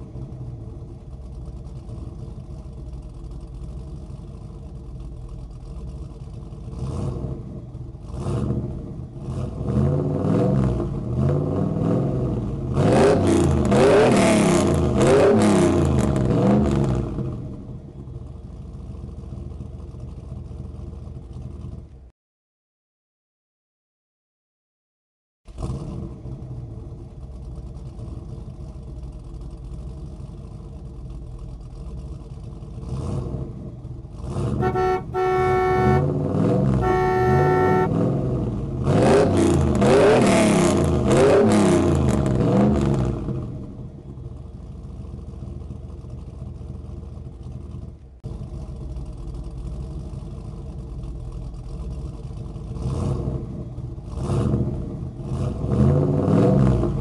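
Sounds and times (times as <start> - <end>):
toy car engine idling and revving: 0.0 - 22.1, 25.5 - 57.0
car horn honks: 34.6 - 38.0.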